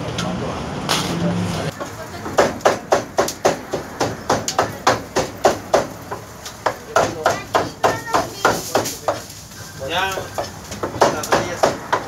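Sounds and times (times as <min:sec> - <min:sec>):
cleaver chopping on wooden block: 0:10.4 - 0:12.0.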